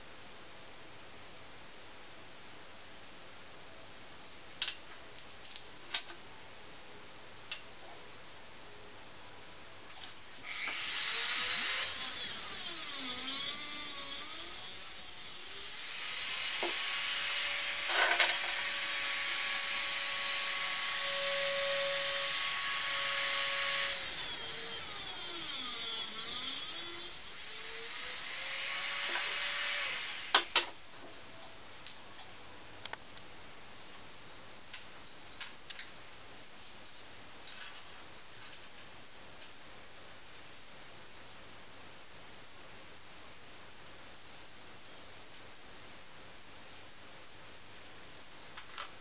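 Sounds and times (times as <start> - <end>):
rotary tool cut-off disc spinning: 10.5 - 30.9.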